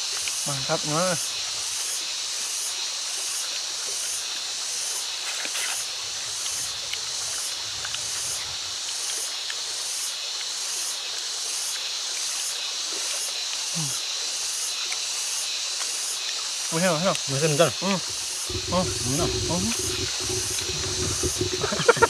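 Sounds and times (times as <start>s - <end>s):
insects chirring in pulsing hiss: 0.0s - 22.0s.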